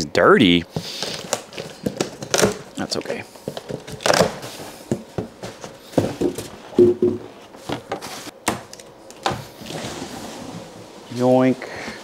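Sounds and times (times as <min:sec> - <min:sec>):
packaging rustling: 0:00.8 - 0:04.6
knocks and thunks of boxes: 0:03.4 - 0:09.5.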